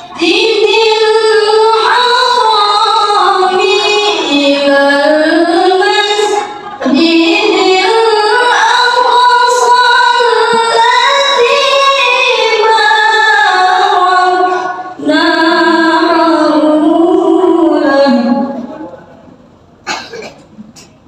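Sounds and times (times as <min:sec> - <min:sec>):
woman chanting into a microphone: 0:00.0 - 0:18.9.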